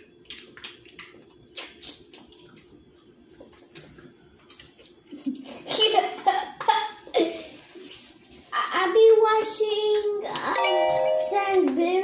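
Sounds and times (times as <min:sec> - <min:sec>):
wet chewing smacks: 0:00.0 - 0:05.6.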